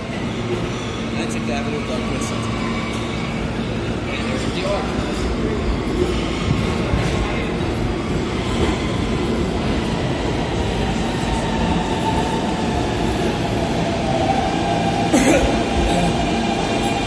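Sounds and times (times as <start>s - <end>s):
subway train rumbling and rattling: 0.0s - 17.0s.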